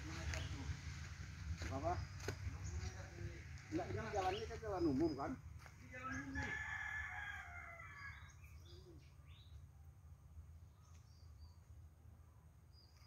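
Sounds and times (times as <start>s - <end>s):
low steady rumble: 0.0s - 13.0s
rooster crowing: 6.0s - 8.4s.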